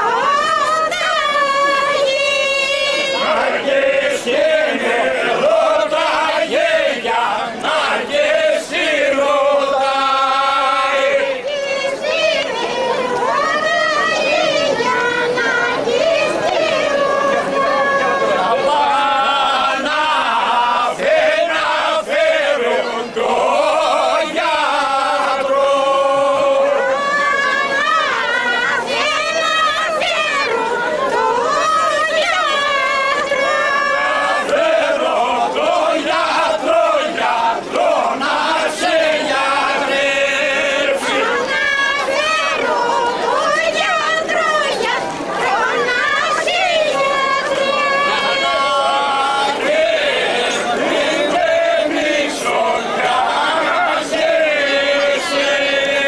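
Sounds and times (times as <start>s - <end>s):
group singing in unison: 0.0s - 56.0s.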